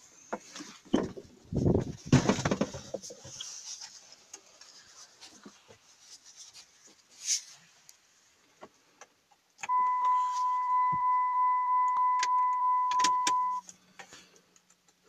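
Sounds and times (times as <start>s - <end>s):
thumps and rubbing in truck cab: 0.3s - 3.4s.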